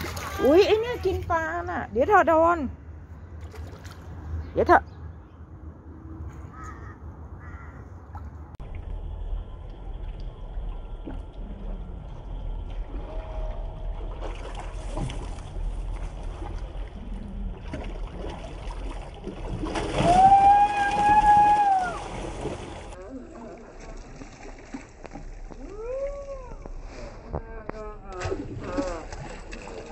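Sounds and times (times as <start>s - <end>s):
loud splash and thrashing water: 0.0s - 0.8s, 12.6s - 25.5s, 28.2s - 29.9s
water sloshing and lapping: 0.0s - 1.8s, 3.3s - 4.4s, 7.8s - 29.9s.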